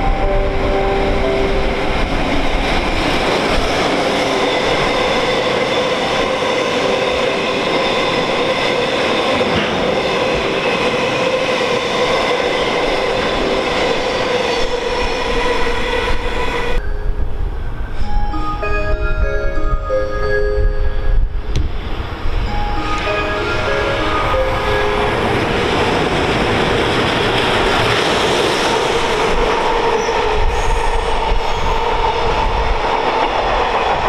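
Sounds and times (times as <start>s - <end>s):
train wheels rumbling on rail: 0.0s - 18.1s, 21.2s - 34.0s
short chime-like tones: 16.8s - 21.2s.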